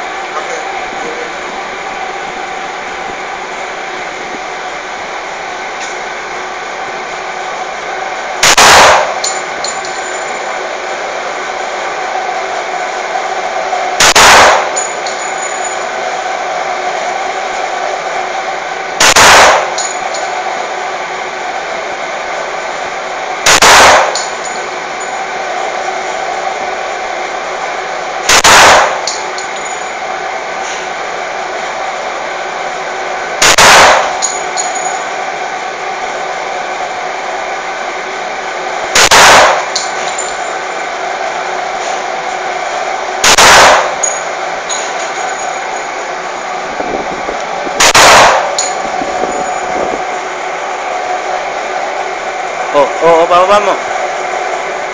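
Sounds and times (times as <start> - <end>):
steady background hum: 0.0 - 54.9
pistol shots: 8.4 - 9.2, 14.0 - 14.8, 19.0 - 19.8, 23.5 - 24.3, 28.3 - 29.0, 33.4 - 34.2, 39.0 - 39.8, 43.2 - 44.0, 47.8 - 48.6.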